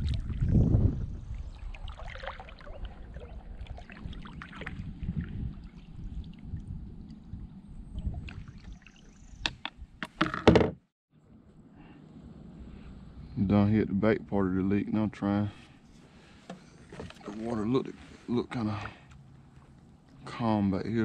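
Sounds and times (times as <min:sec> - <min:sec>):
water sloshing around boat: 0:01.5 - 0:06.6, 0:15.8 - 0:20.4.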